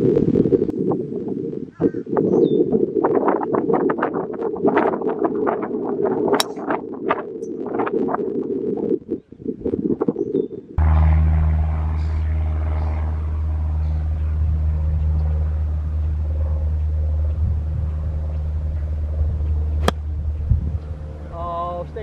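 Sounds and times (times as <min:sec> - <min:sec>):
golf club striking ball: 0:06.4 - 0:06.6, 0:19.8 - 0:20.1
low engine hum: 0:10.8 - 0:22.0.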